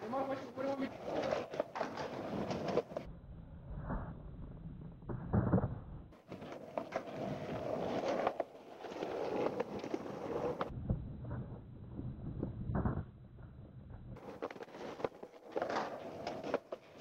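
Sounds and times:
skateboard wheels rolling on concrete: 0.0 - 17.0.

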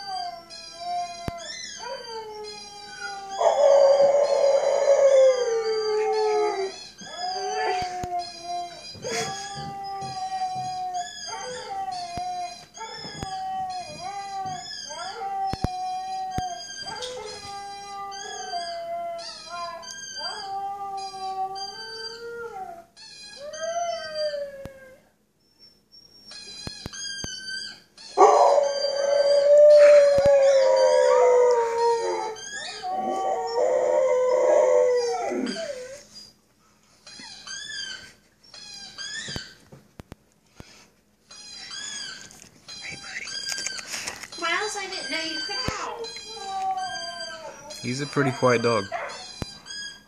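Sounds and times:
husky howling: 0.0 - 25.1, 28.2 - 36.1.

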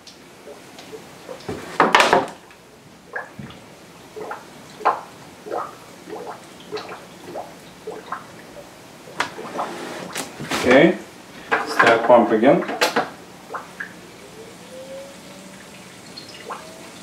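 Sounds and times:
gurgling water glugs: 3.1 - 9.6, 13.4 - 17.0.

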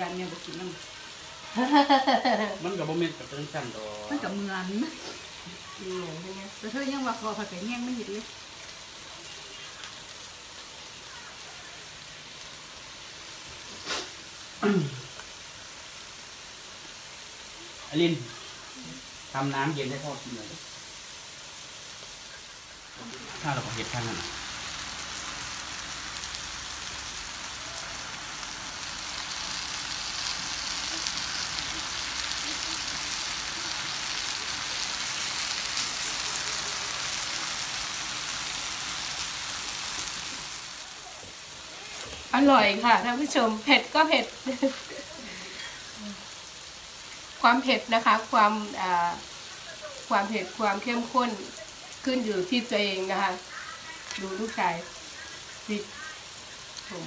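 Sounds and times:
skewers sizzling on a grill: 0.0 - 57.0
short breathy puff: 13.8 - 14.2.

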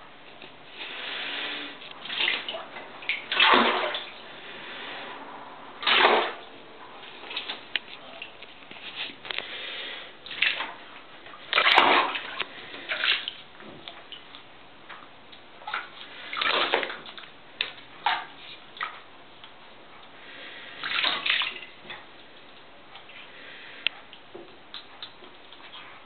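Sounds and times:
bathwater sloshing and splashing: 0.0 - 26.0.

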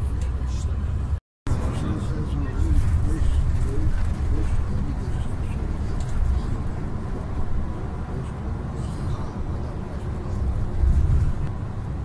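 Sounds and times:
coach engine and tyres rumbling: 0.0 - 12.0.

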